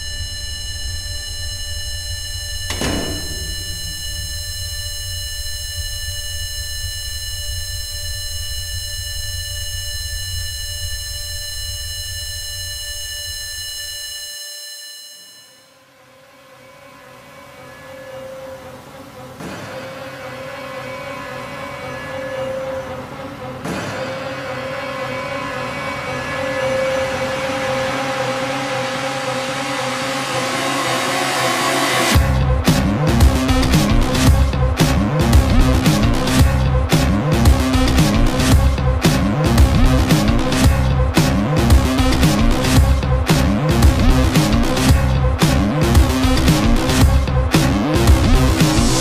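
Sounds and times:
high-pitched ringing tone: 0.0s - 19.2s, 20.0s - 23.3s
loud low rumble: 2.7s - 5.7s.

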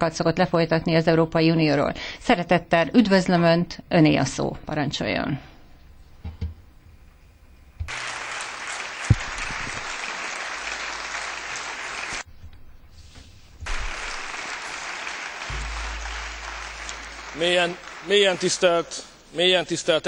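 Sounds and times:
people applauding: 7.9s - 12.3s, 13.7s - 19.2s
low hum: 12.3s - 18.4s
sharp knock: 13.6s - 18.1s.

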